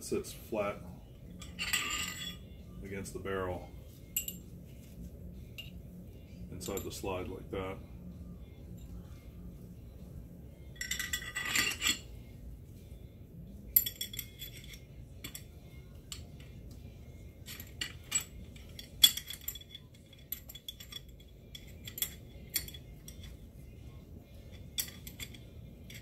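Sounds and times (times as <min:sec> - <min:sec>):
metal rattle: 0:01.4 - 0:02.4, 0:10.8 - 0:12.1, 0:17.4 - 0:23.4, 0:24.5 - 0:26.0.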